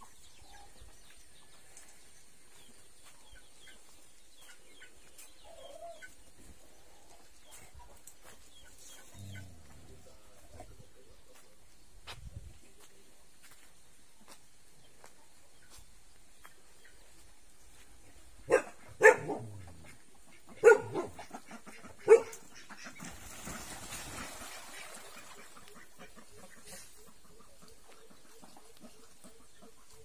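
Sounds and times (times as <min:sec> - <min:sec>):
dog barking: 0:18.5 - 0:19.7, 0:20.6 - 0:21.3, 0:22.0 - 0:22.4.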